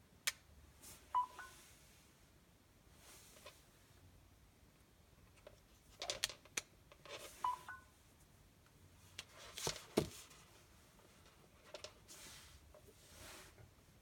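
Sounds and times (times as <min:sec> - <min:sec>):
phone two-note beep: 0:01.2 - 0:01.6, 0:07.4 - 0:07.9.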